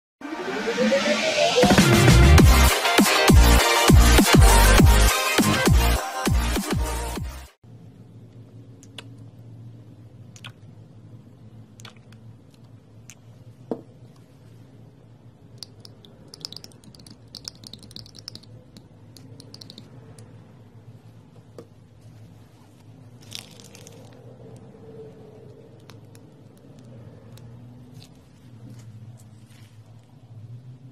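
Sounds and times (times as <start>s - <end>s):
paint squishing and scraping: 21.2s - 30.3s.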